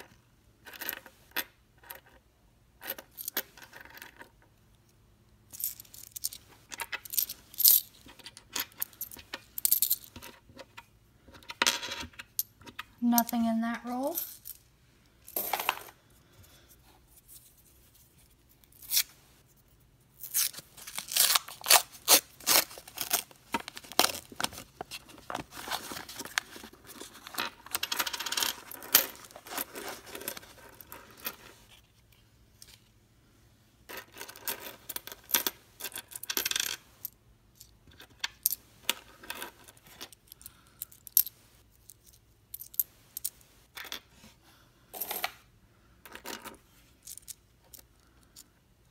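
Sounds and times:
coins clinking: 5.5s - 10.1s, 27.4s - 31.4s, 33.9s - 36.8s.

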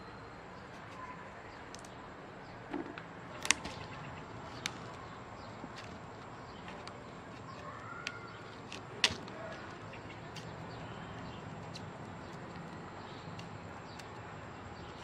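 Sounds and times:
stems snapping: 3.4s - 15.0s.

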